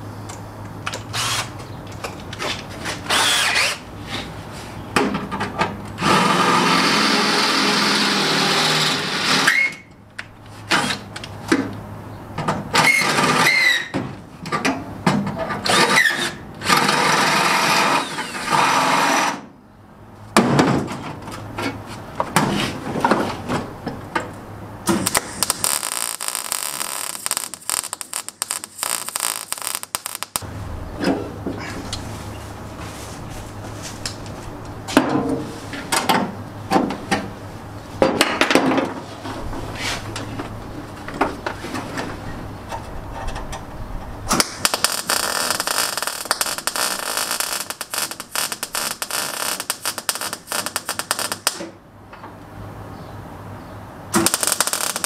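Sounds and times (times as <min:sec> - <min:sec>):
cordless drill drilling sheet steel: 0:03.1 - 0:03.8
welder crackling: 0:24.9 - 0:30.5, 0:44.3 - 0:51.8, 0:54.1 - 0:55.0.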